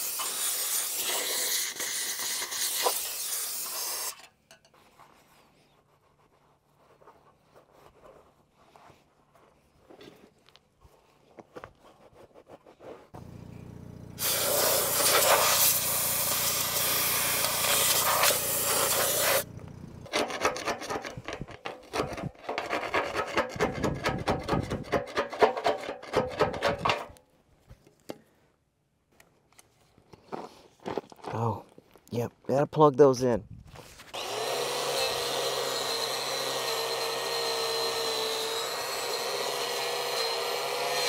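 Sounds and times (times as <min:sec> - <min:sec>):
power tool humming on metal: 0:13.2 - 0:20.1, 0:34.2 - 0:41.0
hand scraping rusty metal: 0:14.2 - 0:27.2.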